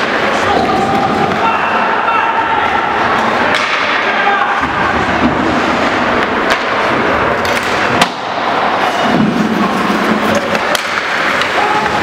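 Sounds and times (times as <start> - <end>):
hockey stick clacks: 3.2 - 12.0
skates scraping on ice: 4.8 - 12.0.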